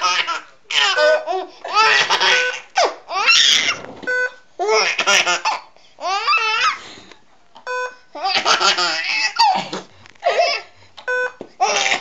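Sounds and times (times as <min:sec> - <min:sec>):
baby laughing: 0:00.0 - 0:03.8, 0:04.6 - 0:06.8, 0:08.2 - 0:10.7, 0:11.6 - 0:12.0.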